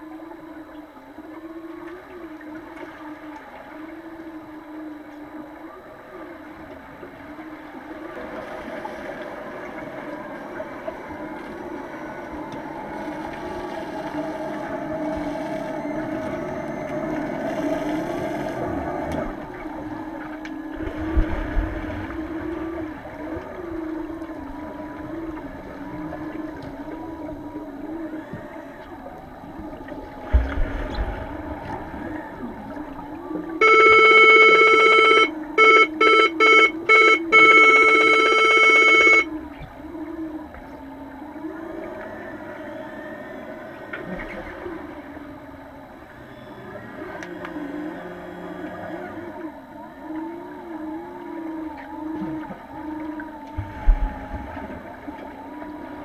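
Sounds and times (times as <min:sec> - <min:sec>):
low hum of pool: 0:00.0 - 0:56.0
loud buzzing underwater horn: 0:31.9 - 0:39.7.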